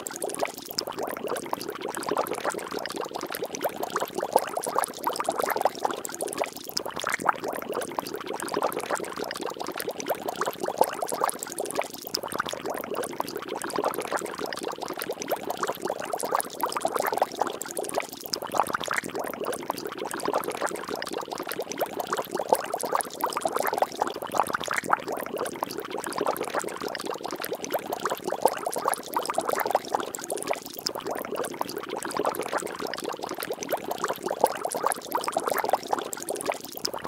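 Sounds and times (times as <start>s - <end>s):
water splashing and bubbling: 0.0s - 37.0s.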